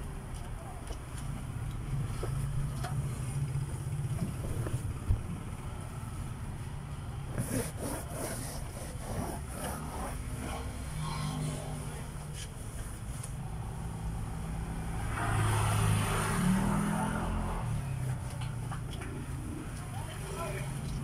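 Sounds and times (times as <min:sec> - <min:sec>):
traffic engine hum: 0:00.0 - 0:21.0
vehicle passing with rising engine: 0:10.1 - 0:12.2, 0:13.7 - 0:18.1.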